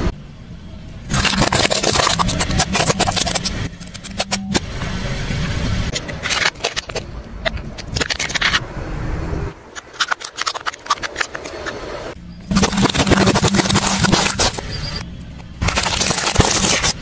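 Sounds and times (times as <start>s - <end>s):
plastic toys cracking under tyre: 1.1s - 4.4s, 6.0s - 8.6s, 9.8s - 11.8s, 12.5s - 14.6s, 15.6s - 17.0s.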